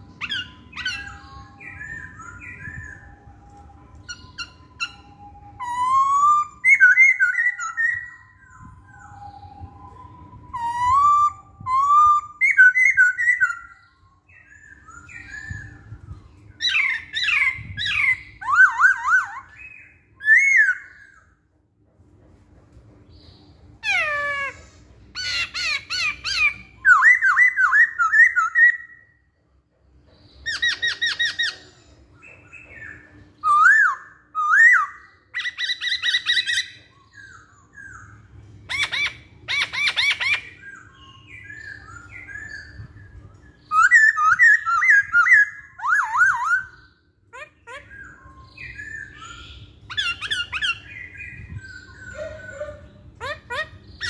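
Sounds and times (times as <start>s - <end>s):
bird singing whistles and rattles: 0.0s - 21.5s, 23.0s - 29.3s, 29.9s - 47.0s, 47.6s - 54.0s.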